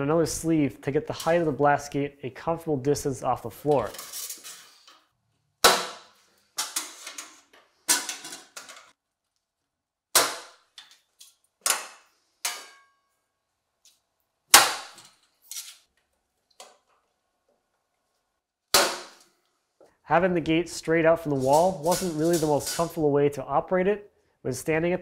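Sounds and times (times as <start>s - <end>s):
sheet metal parts clanking: 6.6s - 8.9s, 21.2s - 23.0s.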